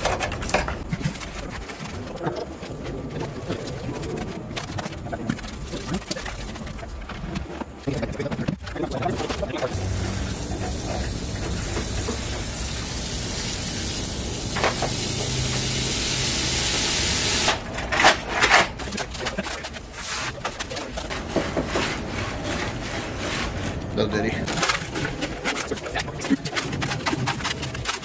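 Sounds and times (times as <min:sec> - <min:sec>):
hose water running into bucket: 0:09.7 - 0:17.6.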